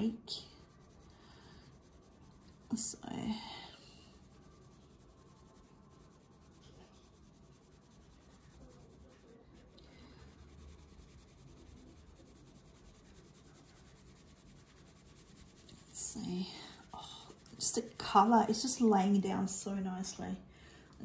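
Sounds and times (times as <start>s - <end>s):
pencil scratching on paper: 0.0s - 18.8s.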